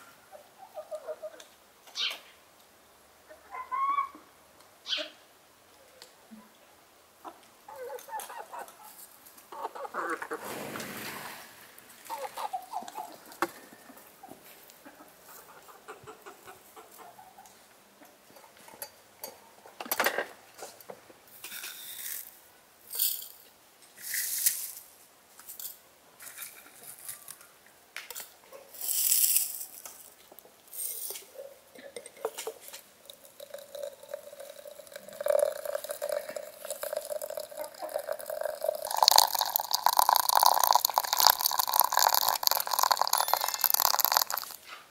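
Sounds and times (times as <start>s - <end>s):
fowl clucking: 9.5s - 10.5s, 14.2s - 17.6s
dry tea leaves rustling: 28.8s - 30.1s, 32.6s - 44.6s
water pouring into teapot: 33.0s - 44.6s.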